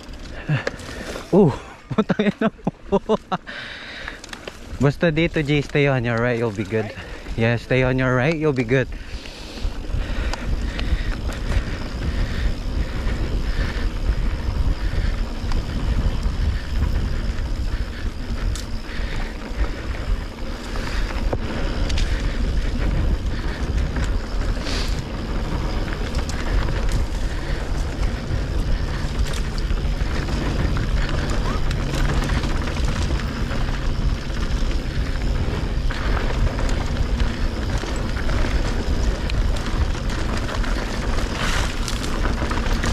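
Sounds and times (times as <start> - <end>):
bike rattling over bumps: 0.0 - 42.9
tyres on dirt: 0.0 - 42.9
wind on microphone: 8.8 - 42.9.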